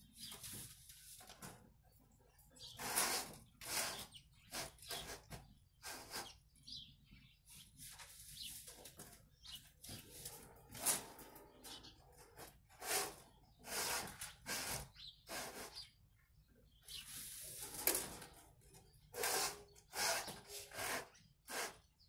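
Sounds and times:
wires scraping through conduit: 2.6s - 6.4s, 7.8s - 15.9s, 16.9s - 21.8s.

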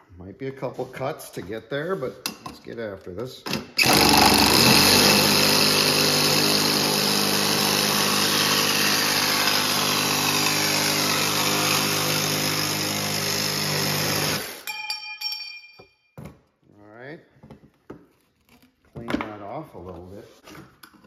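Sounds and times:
reciprocating saw cutting metal: 3.8s - 14.7s.

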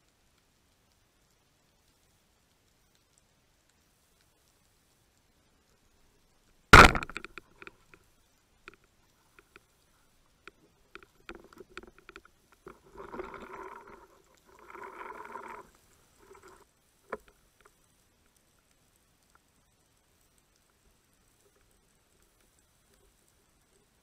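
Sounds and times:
speargun firing underwater: 6.8s - 7.7s.

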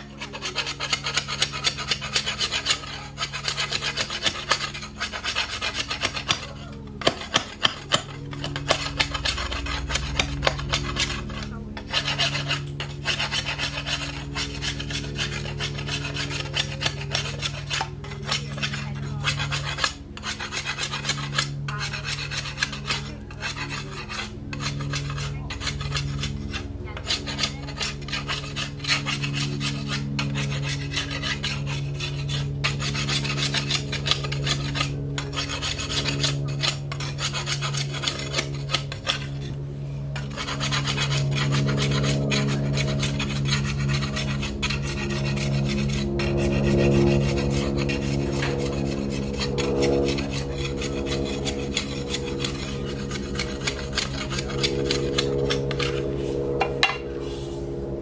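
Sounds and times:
file rasping back and forth: 0.0s - 58.0s.

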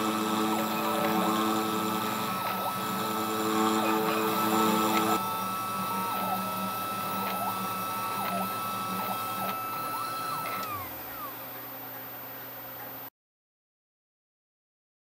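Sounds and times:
stepper motors whirring: 0.0s - 12.2s
router spindle whine: 0.0s - 13.1s.

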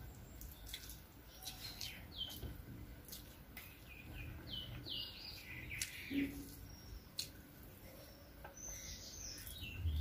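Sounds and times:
small bird chirping: 0.0s - 10.0s
fingers mixing rice on plate: 0.4s - 7.8s.

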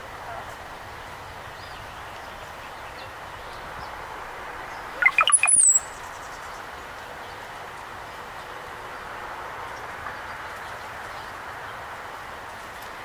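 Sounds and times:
bird song with high whistle: 5.0s - 6.2s.

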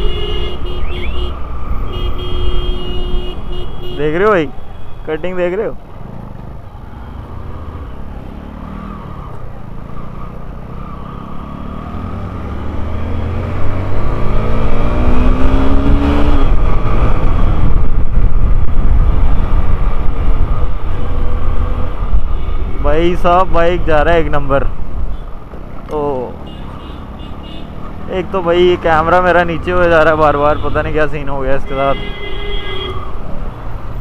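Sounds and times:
motorcycle engine accelerating: 6.0s - 22.1s
wind rush on microphone: 14.8s - 22.8s.

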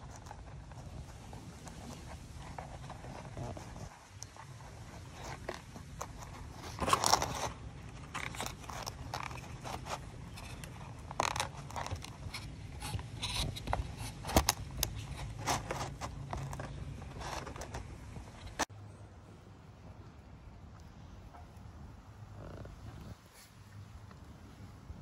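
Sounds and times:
puppies chewing plastic tray: 0.0s - 18.7s.

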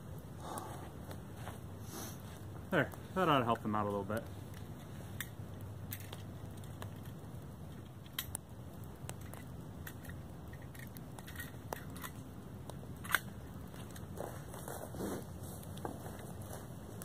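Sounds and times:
low outdoor background noise: 0.0s - 17.0s
sharp clicks and crackles: 2.3s - 14.9s.

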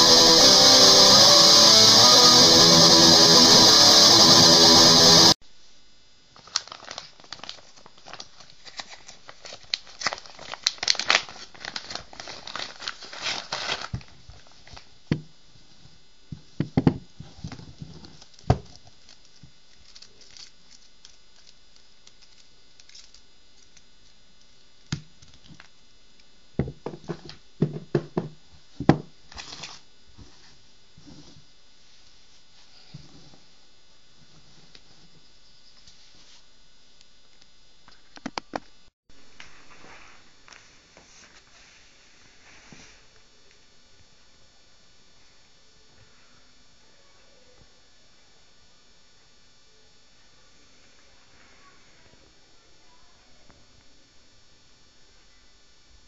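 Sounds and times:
guitar music: 0.0s - 5.4s
crinkling and rustling: 6.3s - 25.8s.

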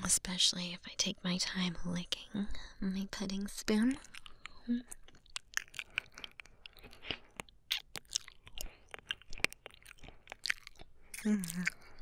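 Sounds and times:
wet licking mouth sounds: 4.0s - 12.0s.

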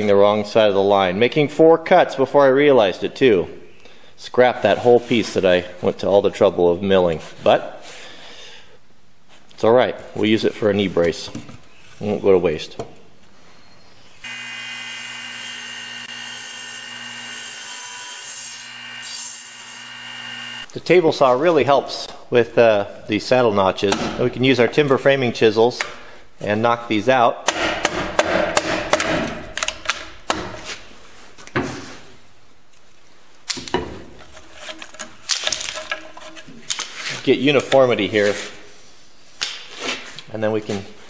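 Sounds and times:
table saw running: 14.2s - 20.7s.

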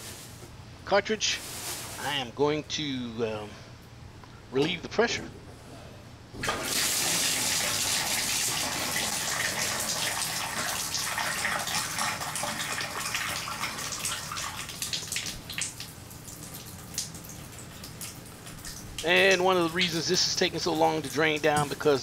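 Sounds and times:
water splashing into tub: 6.4s - 18.8s.

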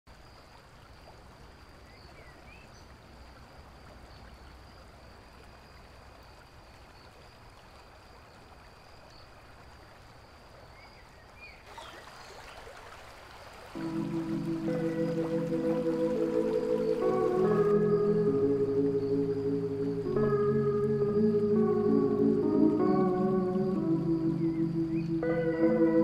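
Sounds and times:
creek splashing over rocks: 0.1s - 17.9s.

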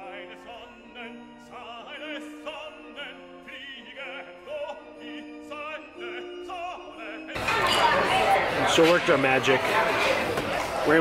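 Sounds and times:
operatic singing: 0.0s - 8.6s.

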